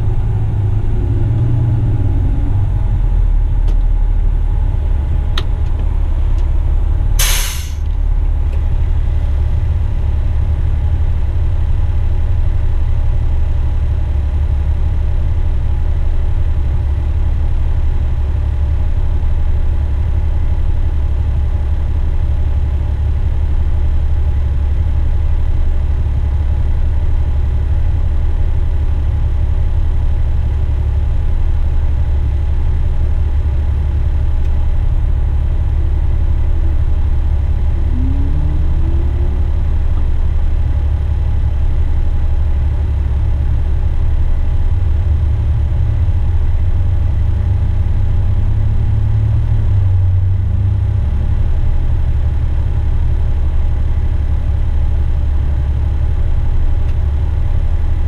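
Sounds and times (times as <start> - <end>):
truck diesel engine drone: 0.0 - 58.0
air brake hiss: 7.2 - 7.9.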